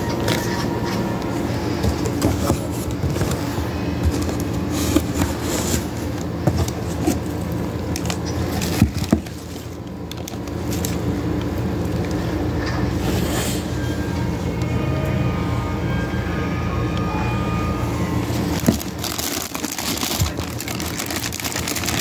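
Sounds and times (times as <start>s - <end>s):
cardboard and plastic rustling: 0.0s - 13.8s, 18.2s - 22.0s
steady low hum: 0.0s - 22.0s.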